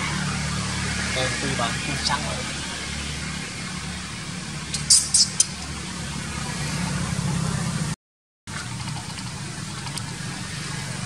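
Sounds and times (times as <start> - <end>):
low motor-like hum: 0.0 - 11.0.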